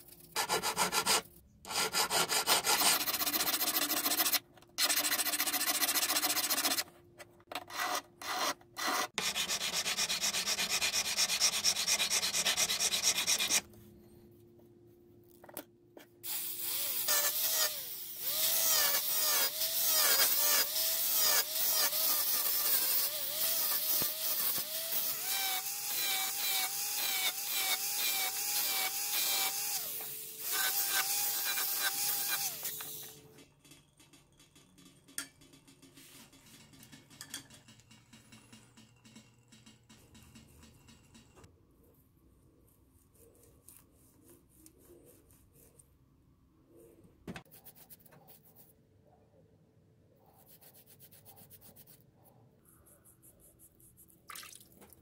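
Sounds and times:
scratchy hand sanding: 0:00.3 - 0:06.8, 0:09.2 - 0:13.6, 0:50.4 - 0:52.0.

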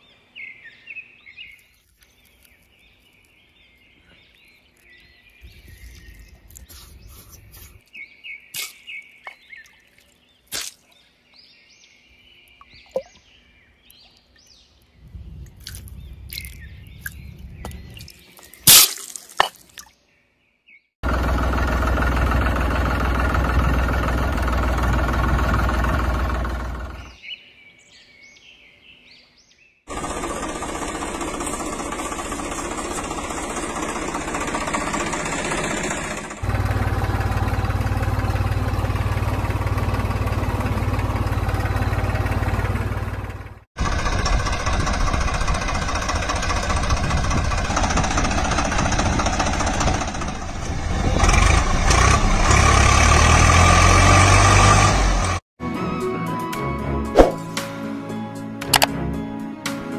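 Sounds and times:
engine running: 0:21.0 - 0:27.2, 0:29.9 - 0:55.4.

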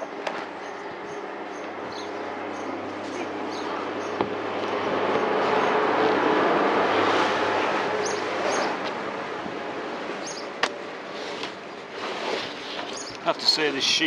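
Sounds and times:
rubber membrane dragged on roof: 0:11.1 - 0:13.6.

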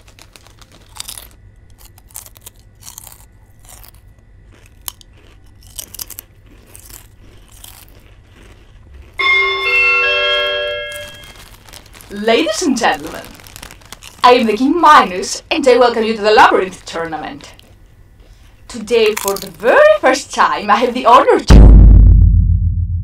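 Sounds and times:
crisp bags rustling: 0:00.0 - 0:02.6, 0:10.4 - 0:18.5
potato chips crunching: 0:00.0 - 0:09.2, 0:10.9 - 0:20.0
sustained musical chord: 0:09.2 - 0:11.6.

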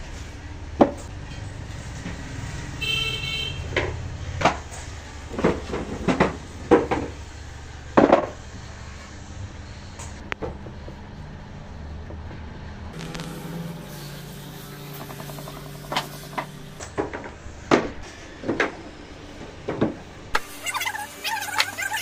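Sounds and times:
horn toot: 0:02.8 - 0:03.7
steady low rumble: 0:12.7 - 0:15.8.

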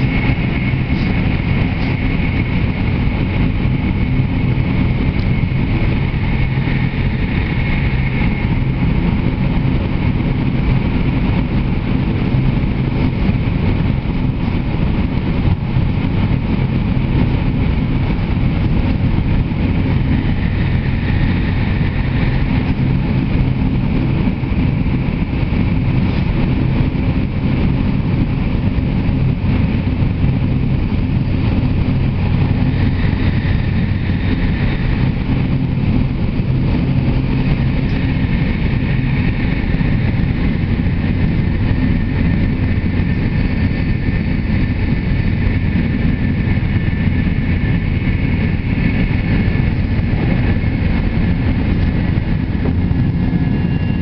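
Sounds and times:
low hum: 0:00.0 - 0:54.0
train rushing through tunnel: 0:00.0 - 0:54.0.

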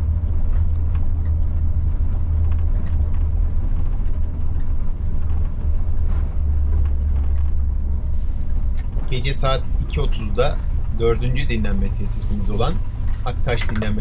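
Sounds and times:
coach engine drone: 0:00.0 - 0:14.0
road noise: 0:00.0 - 0:14.0.

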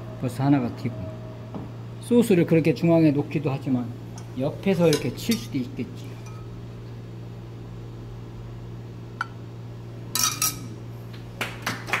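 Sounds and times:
metal spoon clinking on cookware: 0:04.2 - 0:06.5, 0:10.2 - 0:10.7.

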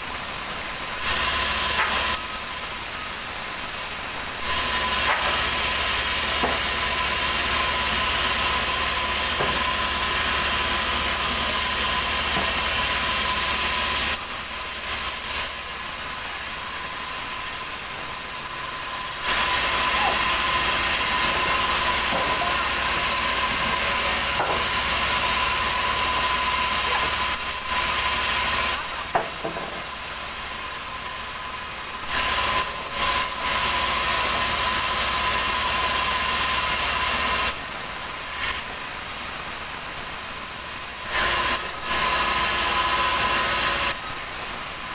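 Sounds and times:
sawmill saw whining: 0:00.0 - 0:44.9
saw blade hissing through timber: 0:04.2 - 0:39.3.

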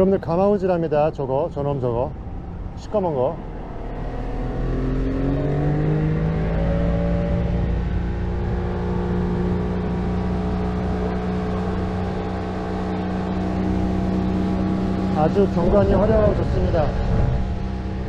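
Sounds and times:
boat motor running: 0:05.0 - 0:18.0.

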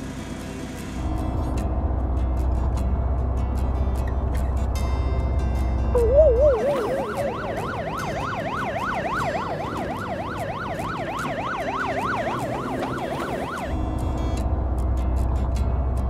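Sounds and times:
police siren yelping: 0:06.0 - 0:13.9.

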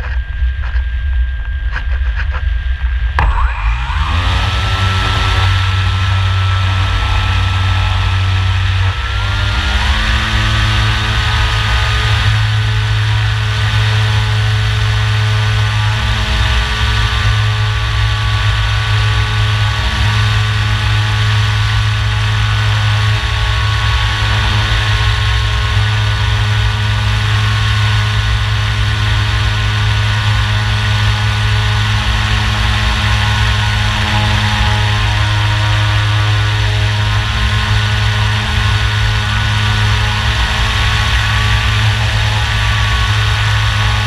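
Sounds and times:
wind rush: 0:00.0 - 0:09.9
electric motor and propeller drone: 0:00.0 - 0:44.0.

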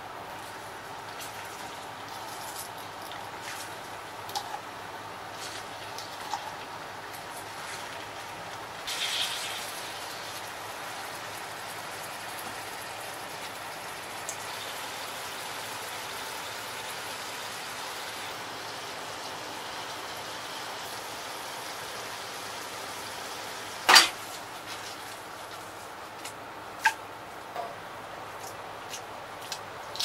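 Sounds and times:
food sizzling in frying pan: 0:08.8 - 0:15.5
pan clinking on burner: 0:23.9 - 0:24.2.

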